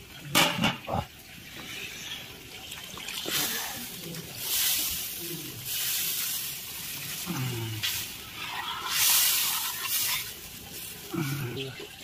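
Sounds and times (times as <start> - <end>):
water splashing into curry: 2.5 - 12.0.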